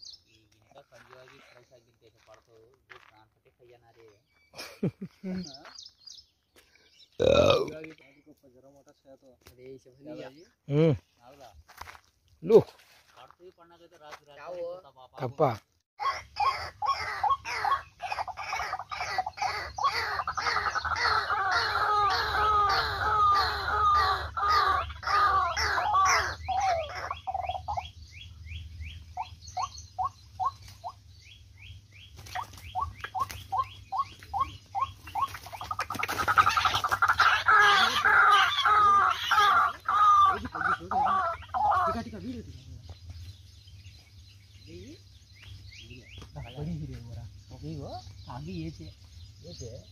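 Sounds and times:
waterhen harsh calls: 0:16.0 - 0:27.8, 0:32.4 - 0:42.0.

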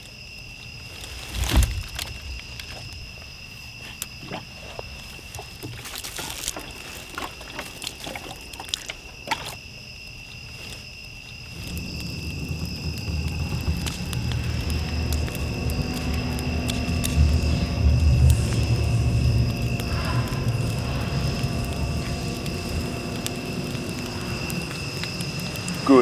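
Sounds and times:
crickets trilling: 0:00.0 - 0:26.0
dry branches snapping: 0:05.6 - 0:09.6
low rumble: 0:11.5 - 0:26.0.

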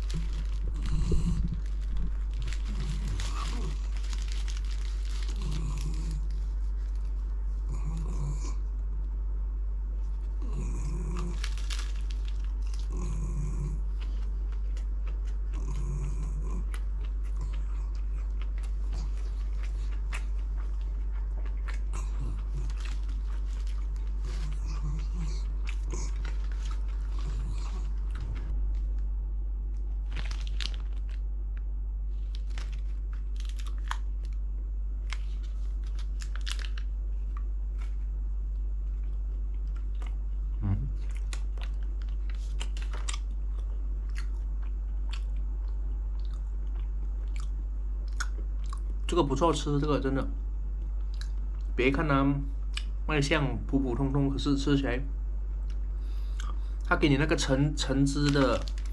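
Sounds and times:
chewing and biting: 0:00.0 - 0:08.6, 0:10.4 - 0:28.6, 0:32.2 - 0:34.4, 0:38.6 - 0:49.1
steady low hum: 0:00.0 - 0:58.9.

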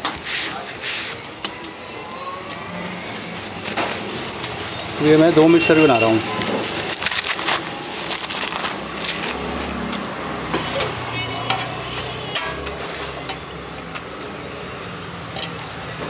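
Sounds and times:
faint voices: 0:00.4 - 0:08.8, 0:10.6 - 0:13.3
vehicle engine hum: 0:06.2 - 0:16.0.

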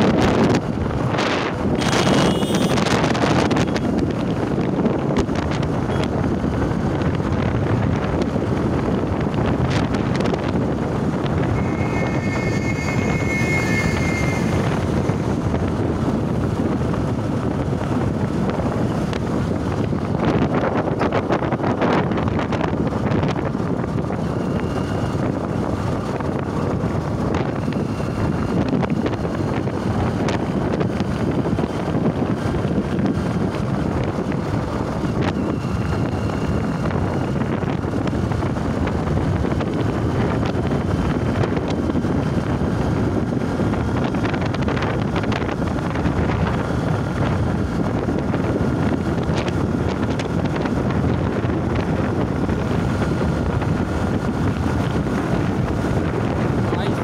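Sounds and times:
vehicle road noise: 0:00.0 - 0:57.0
wind on microphone: 0:00.0 - 0:57.0
brief high tone: 0:11.4 - 0:15.3.

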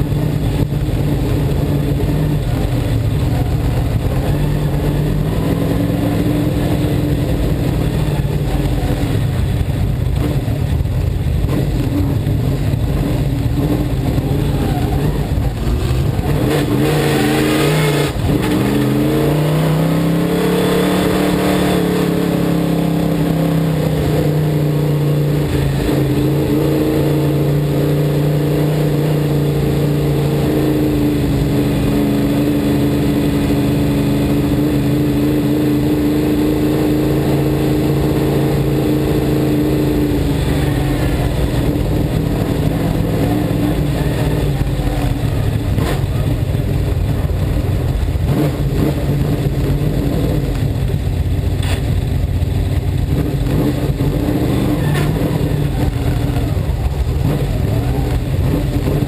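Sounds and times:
race car engine running: 0:00.0 - 0:59.0.

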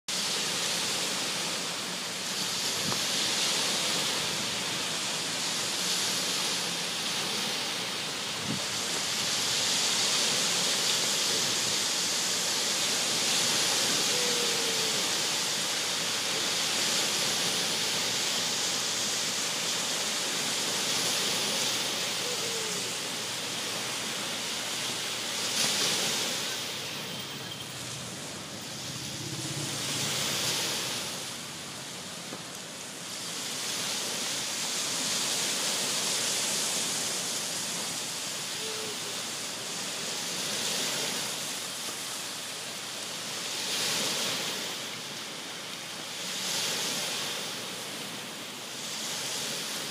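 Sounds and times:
small waves breaking on shore: 0:00.1 - 0:49.9.

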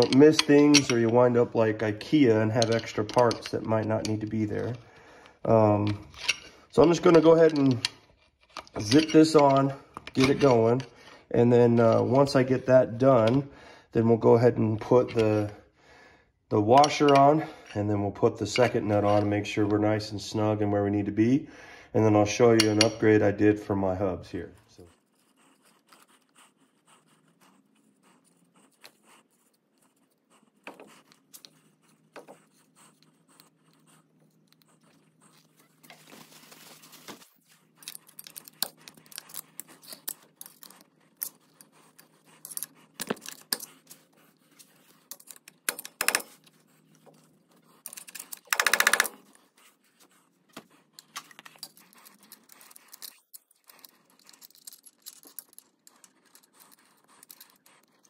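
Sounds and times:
small metal clicks and scrapes: 0:00.0 - 0:04.8, 0:05.8 - 0:10.9, 0:24.7 - 0:36.3, 0:37.4 - 0:49.4, 0:50.9 - 0:58.0.

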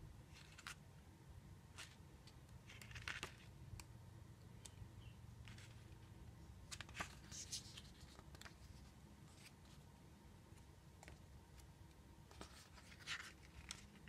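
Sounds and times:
booklet pages turning: 0:00.3 - 0:00.8, 0:01.7 - 0:03.6, 0:05.4 - 0:09.9, 0:12.3 - 0:14.0.

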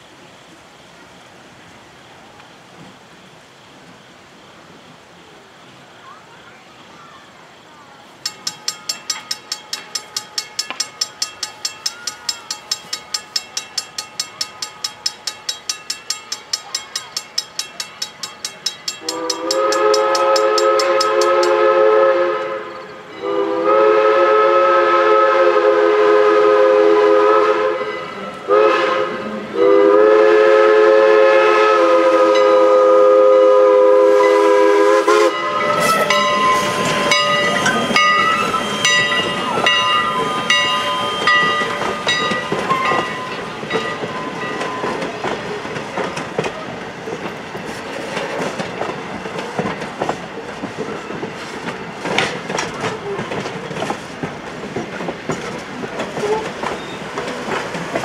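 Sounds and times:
crossing bell ringing: 0:08.1 - 0:21.9, 0:22.5 - 0:23.6, 0:27.7 - 0:28.8, 0:32.1 - 0:32.9, 0:35.2 - 0:46.3
steam locomotive chime whistle: 0:08.1 - 0:46.2
train cars clickety-clack: 0:08.1 - 0:58.0.

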